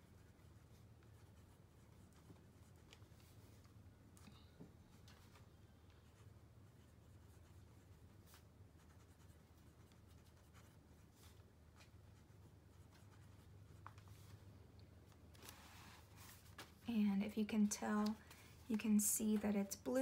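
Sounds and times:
fountain pen scratching on paper: 0.0s - 3.2s, 6.0s - 11.2s.

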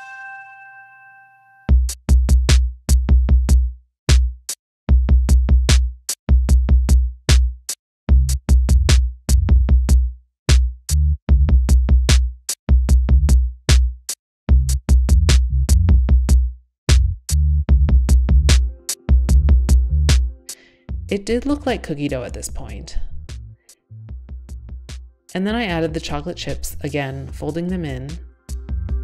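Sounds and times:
electronic music with drum-machine beat: 18.1s - 21.1s, 27.9s - 29.0s.

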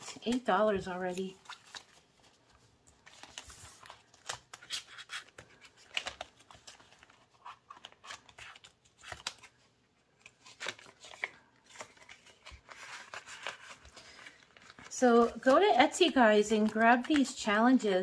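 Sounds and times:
paper money rustling: 10.2s - 17.5s.

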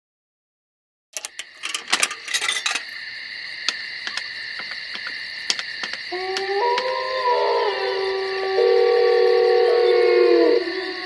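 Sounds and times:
sharp clicks: 1.2s - 2.9s, 3.6s - 6.9s.

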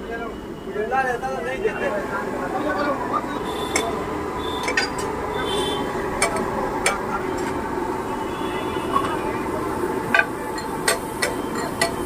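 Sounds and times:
steady background noise: 0.0s - 12.0s
steel utensils clinking on griddle: 4.6s - 5.1s, 10.2s - 12.0s.

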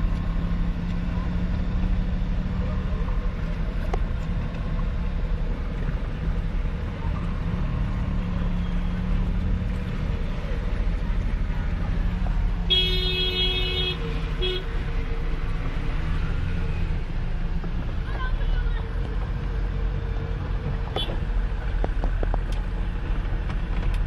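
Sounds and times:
vehicle rumble inside cabin: 0.0s - 24.0s
vehicle horn: 12.6s - 14.8s.

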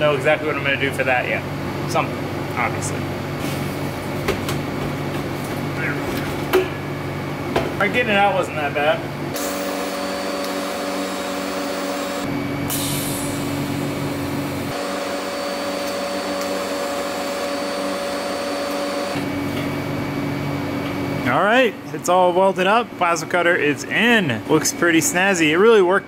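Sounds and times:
welding arc hissing buzz: 9.3s - 19.3s.

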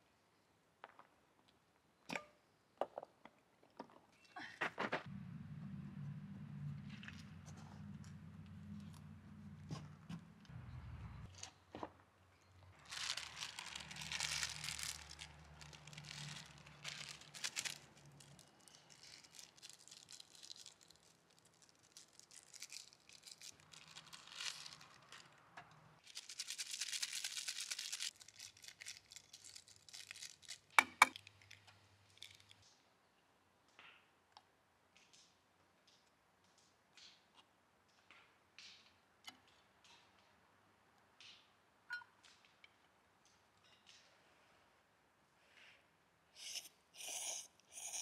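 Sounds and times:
gear rustling and crinkling: 12.6s - 25.4s, 26.0s - 32.6s.

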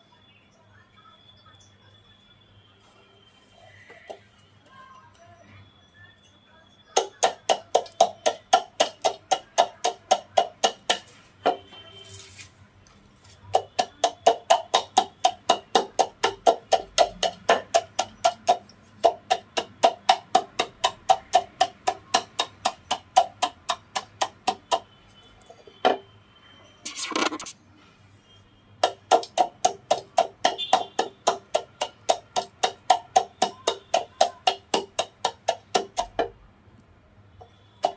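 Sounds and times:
wooden pestle pounding in mortar: 7.0s - 11.7s, 13.5s - 25.0s, 28.8s - 36.4s.

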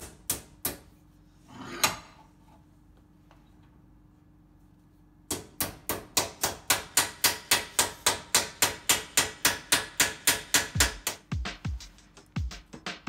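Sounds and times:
hammer striking sheet metal: 5.3s - 11.6s.

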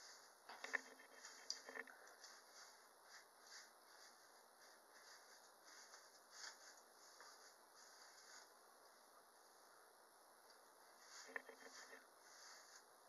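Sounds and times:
hairbrush strokes through hair: 2.2s - 8.6s, 10.9s - 13.0s.

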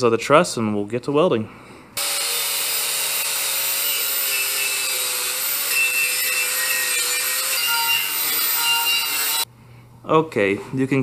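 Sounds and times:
angle grinder wire brushing steel: 2.0s - 9.5s.

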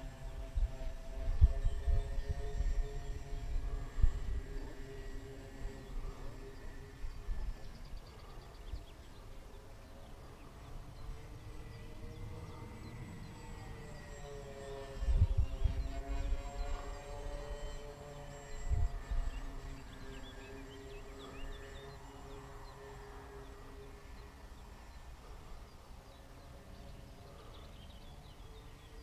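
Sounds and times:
wind rumbling on microphone: 0.0s - 9.0s, 14.8s - 20.0s
distant rc plane motors whining: 0.0s - 29.0s.

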